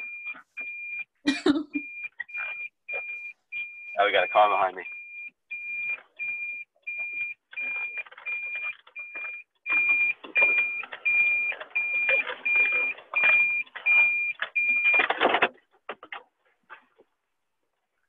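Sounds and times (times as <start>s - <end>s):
car warning chime beeping: 1.8s - 15.1s.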